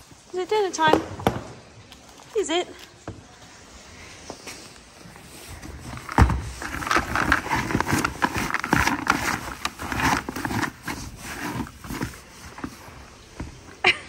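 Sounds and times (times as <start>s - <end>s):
dry feed rustling in plastic tub: 5.3s - 13.3s.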